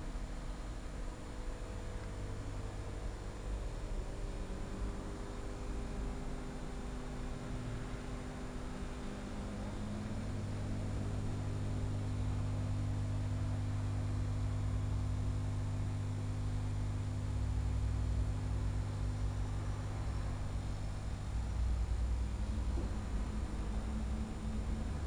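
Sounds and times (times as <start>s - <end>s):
low electrical hum: 0.0s - 25.0s.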